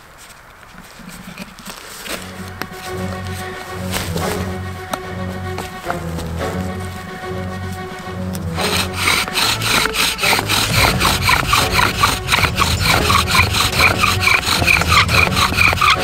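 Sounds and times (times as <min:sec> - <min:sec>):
bow drill squeaky friction: 0:08.6 - 0:16.0.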